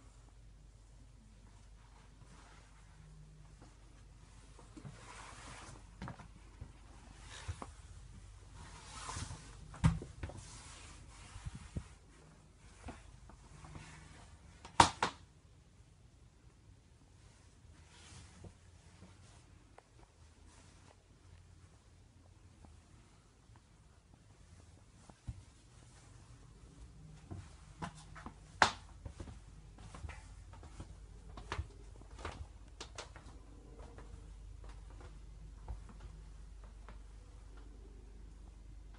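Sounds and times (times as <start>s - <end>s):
soft rubbing: 0.0s - 14.5s, 17.2s - 32.2s.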